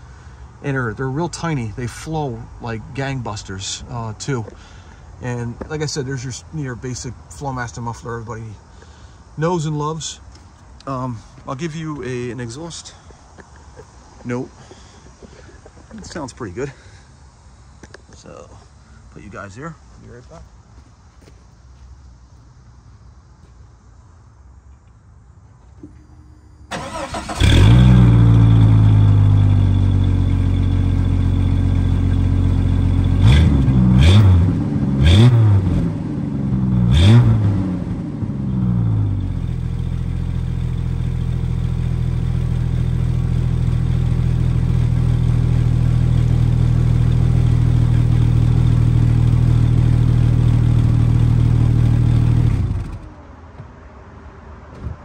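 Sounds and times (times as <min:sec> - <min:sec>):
car engine starting and revving: 0:26.7 - 0:53.2.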